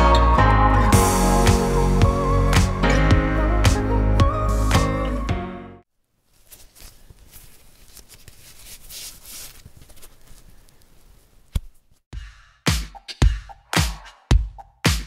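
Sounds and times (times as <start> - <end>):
music: 0.0 - 5.8, 12.2 - 15.0
faint rustling crackling noise: 6.0 - 12.0.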